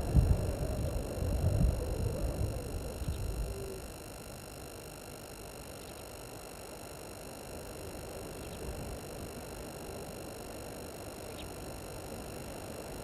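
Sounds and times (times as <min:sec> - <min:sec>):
high-pitched electrical whine: 0:00.0 - 0:13.0.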